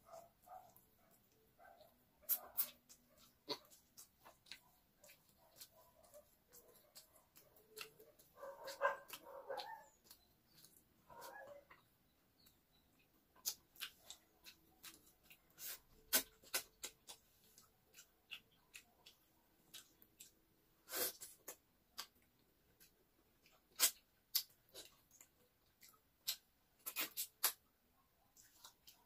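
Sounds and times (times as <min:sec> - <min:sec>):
person eating wet mouth sounds: 0:02.2 - 0:09.3, 0:13.4 - 0:22.2, 0:22.8 - 0:27.6.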